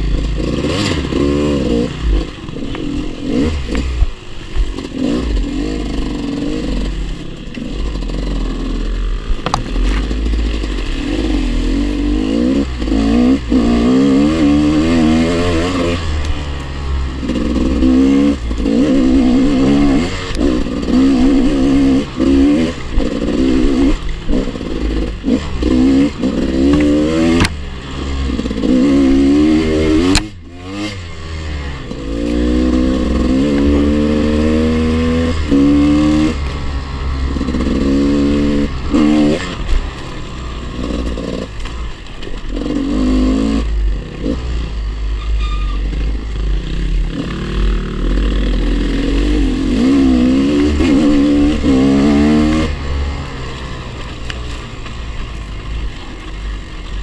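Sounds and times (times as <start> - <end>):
dirt bike engine revving: 0.0 - 54.3.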